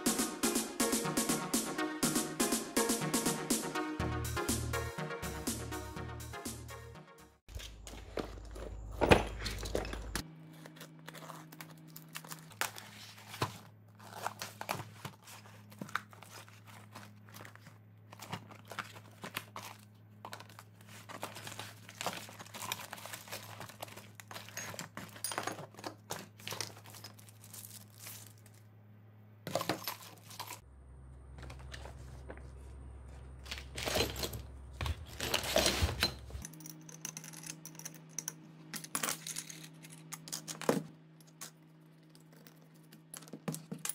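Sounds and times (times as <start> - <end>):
plastic bags crinkling: 10.8 - 28.6.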